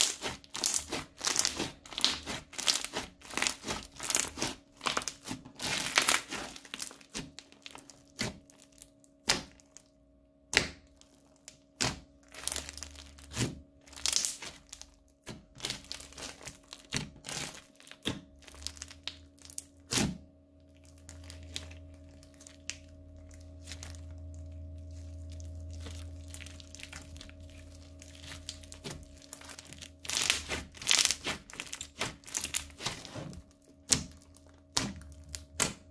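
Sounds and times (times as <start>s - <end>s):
crunchy slime popping and crackling: 0.0s - 35.9s
low rumble: 18.3s - 35.9s.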